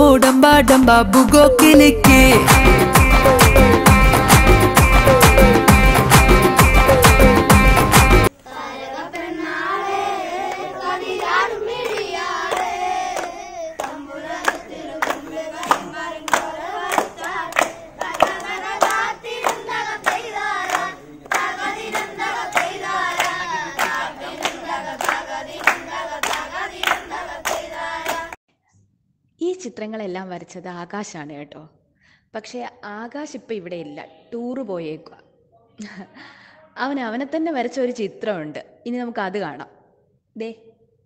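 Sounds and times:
boys singing together: 1.6 - 28.4
hands clapping: 2.4 - 8.3, 10.5 - 28.4.

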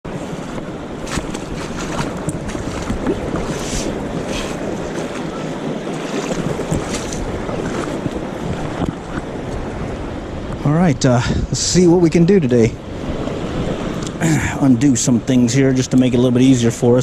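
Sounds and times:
wind buffeting microphone: 0.0 - 17.0
river water rushing: 0.1 - 10.5.

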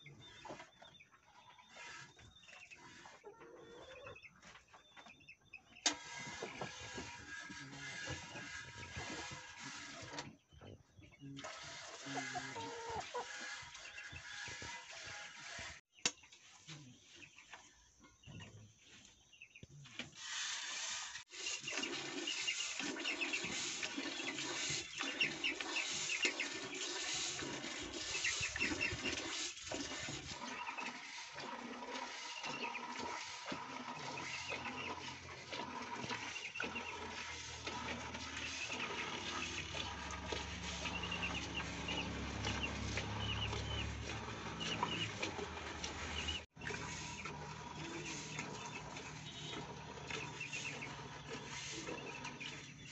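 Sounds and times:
milk squirting into metal bucket: 11.4 - 12.8, 20.2 - 52.9.

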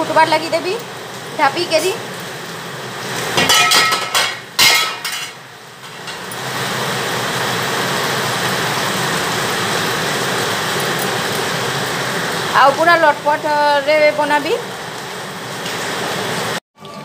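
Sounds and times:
metal lid clanking on pan: 3.4 - 6.2.

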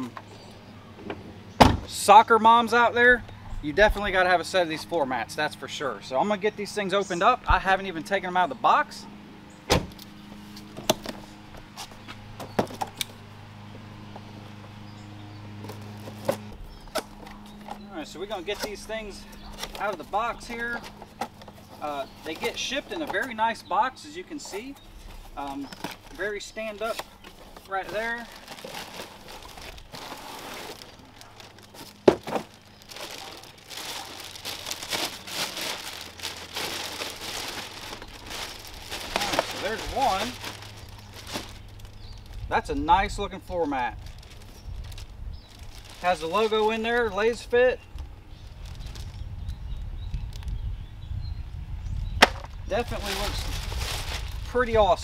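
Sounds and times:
plastic bag crinkling: 24.6 - 42.5, 44.0 - 46.8, 47.9 - 49.2, 52.7 - 54.7
cardboard box clicks and knocks: 31.8 - 32.6.

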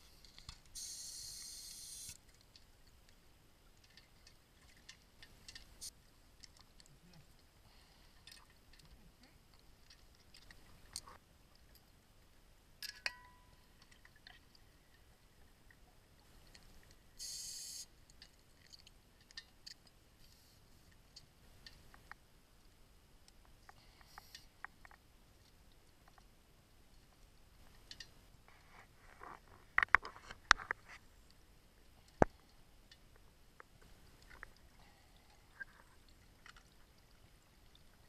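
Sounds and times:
short hiss: 0.8 - 2.2, 17.2 - 17.9
underwater equipment clicks and knocks: 12.8 - 14.4, 29.2 - 30.9.

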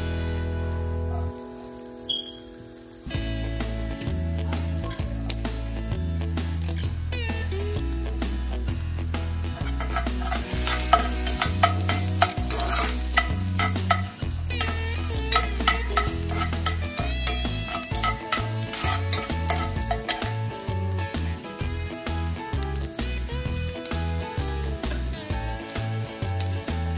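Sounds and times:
background music with bass: 0.0 - 1.5, 3.1 - 26.9
garlic sizzling in a pan: 0.0 - 26.9
metal spoon scraping pan: 9.6 - 20.6.

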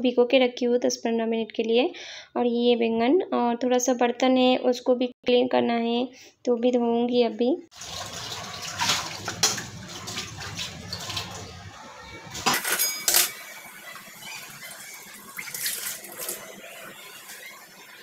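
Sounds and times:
tap water running: 7.7 - 18.0
metal pots clinking: 12.3 - 16.4.

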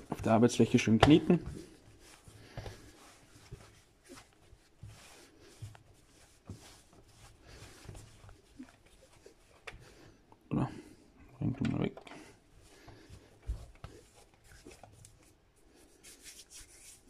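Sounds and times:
dough kneading thuds and rubbing: 0.0 - 10.1, 11.6 - 15.4.

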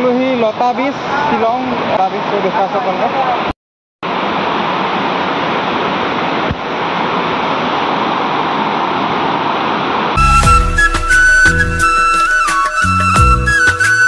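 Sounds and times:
river rapids rushing: 4.1 - 14.0
flute music: 10.2 - 14.0.

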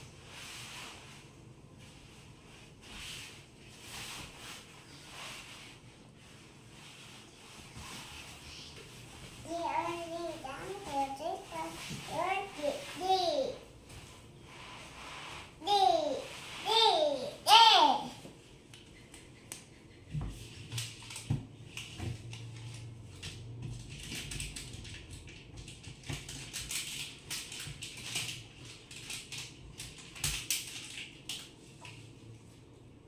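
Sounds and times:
toddler babbling: 9.5 - 13.6, 15.6 - 18.2
stickers crinkling as peeled: 22.3 - 31.6.

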